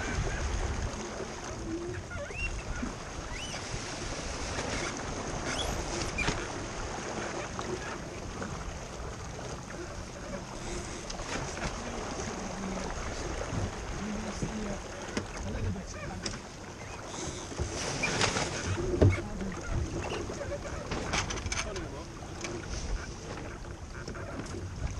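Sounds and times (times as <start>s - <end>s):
water rushing along hull: 0.0s - 24.9s
short high squeaks: 3.2s - 3.6s, 4.7s - 6.4s.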